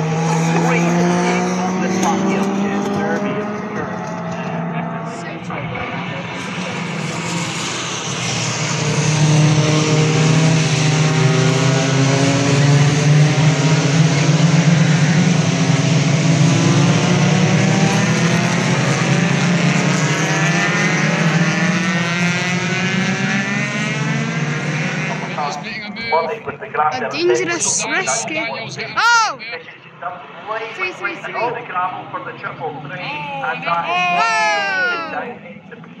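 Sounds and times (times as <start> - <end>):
racing cars passing: 0.0 - 36.0.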